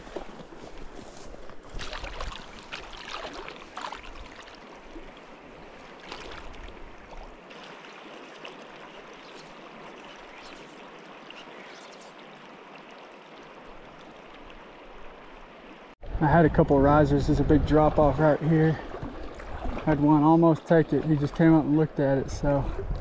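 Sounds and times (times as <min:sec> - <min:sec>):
river water rushing: 0:01.8 - 0:16.0.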